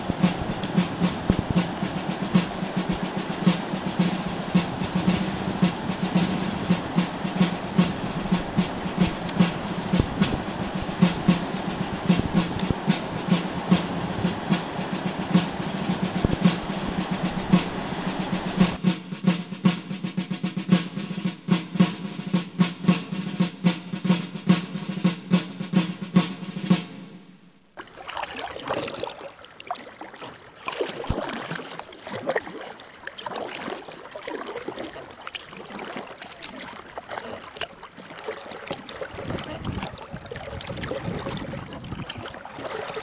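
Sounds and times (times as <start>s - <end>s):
paddle strokes splashing water: 0.0s - 18.8s, 27.8s - 43.0s
music with fast drum beat: 0.0s - 27.2s.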